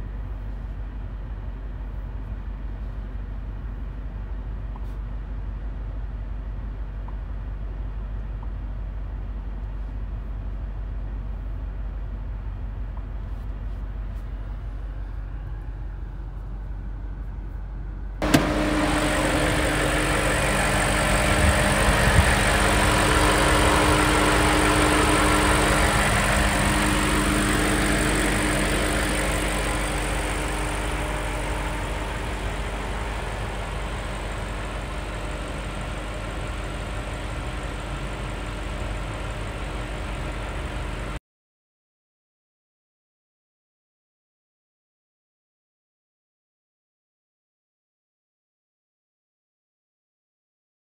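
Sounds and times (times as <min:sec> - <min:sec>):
low steady hum: 0:00.0 - 0:41.2
car engine starting and idling: 0:18.0 - 0:41.2.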